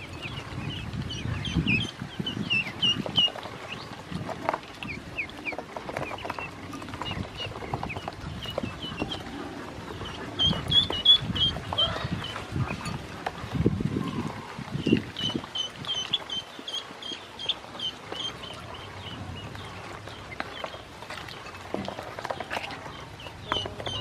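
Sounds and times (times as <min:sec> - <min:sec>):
ducklings peeping: 0:00.0 - 0:24.0
bills pecking in plastic basin: 0:02.8 - 0:13.6, 0:20.0 - 0:24.0.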